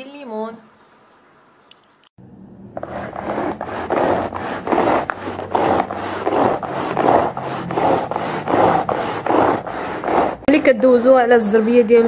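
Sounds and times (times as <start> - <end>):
carpet sweeper rubbing on rug: 2.7 - 12.0.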